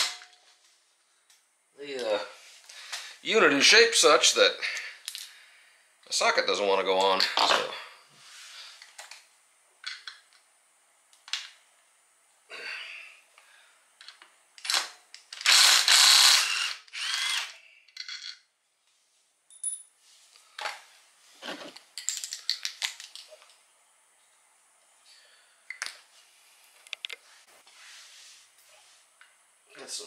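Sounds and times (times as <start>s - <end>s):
ratchet wrench ratcheting: 15.4s - 17.6s.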